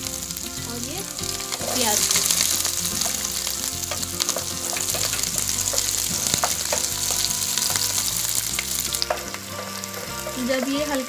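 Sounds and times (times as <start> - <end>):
vegetables sizzling in hot oil: 0.0 - 11.0
spatula knocking against pan: 3.9 - 8.1.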